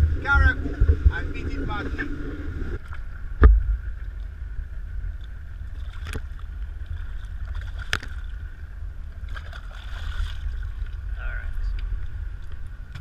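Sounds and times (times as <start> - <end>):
boat engine rumble: 0.0 - 13.0
water washing past hull: 0.0 - 13.0
sharp knocks and splashes: 5.7 - 8.3, 9.3 - 11.0.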